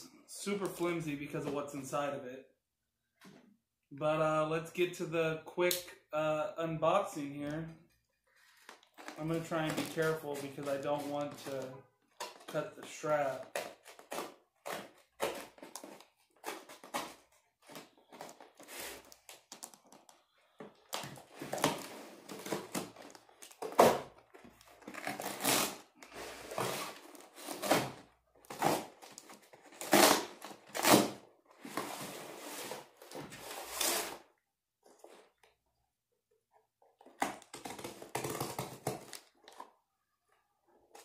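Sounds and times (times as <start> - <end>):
cardboard tearing and crinkling: 21.2 - 34.2.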